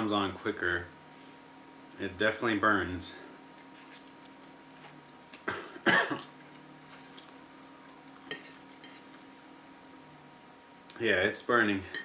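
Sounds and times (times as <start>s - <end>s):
man coughing: 5.4s - 6.3s.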